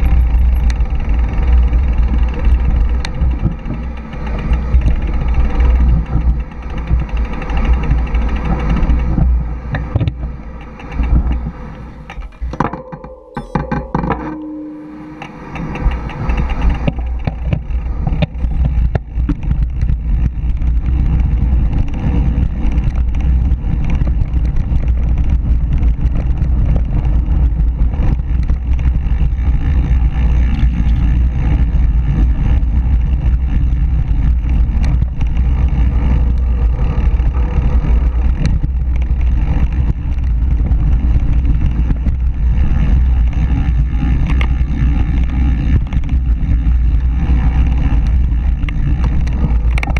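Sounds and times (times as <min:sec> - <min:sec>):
bike tyres rumbling on dirt: 0:00.0 - 0:12.8, 0:15.2 - 0:49.9
wind rushing over microphone: 0:13.4 - 0:49.9.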